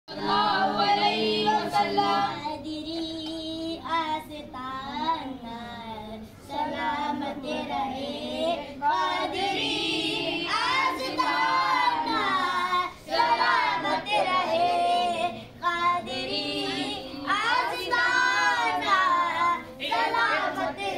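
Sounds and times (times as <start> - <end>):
children singing: 4.8 - 20.9.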